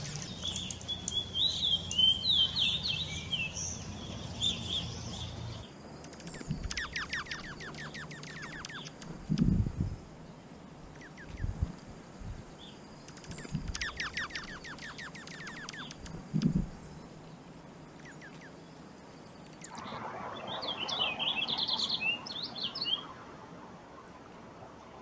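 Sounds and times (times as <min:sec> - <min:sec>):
songbirds chirping: 0:00.0 - 0:25.0
dull low thumps: 0:16.2 - 0:16.8.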